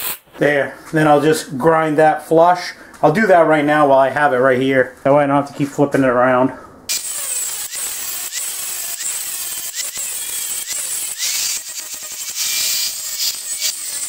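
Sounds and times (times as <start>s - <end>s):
angle grinder grinding metal: 6.9s - 14.0s.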